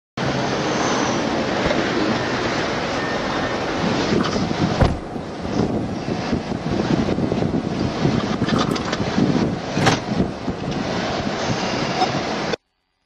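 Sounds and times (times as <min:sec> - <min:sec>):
vehicle and wind noise: 0:00.2 - 0:12.6
sharp knock: 0:04.8 - 0:05.1.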